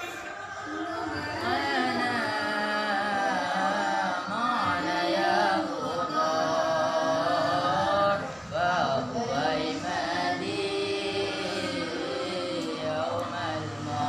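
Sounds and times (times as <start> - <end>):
woman singing chant-like: 0.0 - 14.0.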